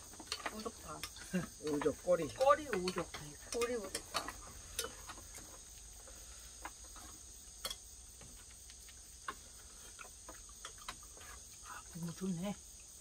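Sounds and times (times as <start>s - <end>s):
high-pitched insect chorus: 0.0s - 13.0s
utensils clicking on metal bowls: 0.2s - 5.1s.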